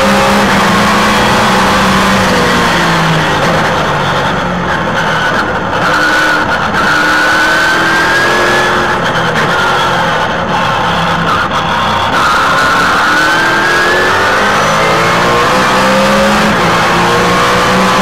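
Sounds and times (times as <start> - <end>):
race car engine revving: 0.0 - 18.0.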